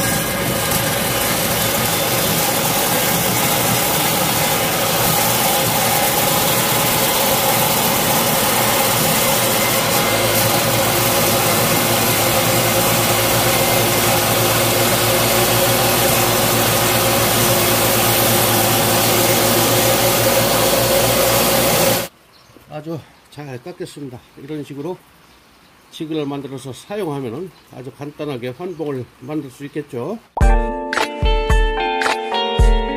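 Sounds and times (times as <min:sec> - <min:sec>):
table saw cutting wood: 0:00.0 - 0:22.1.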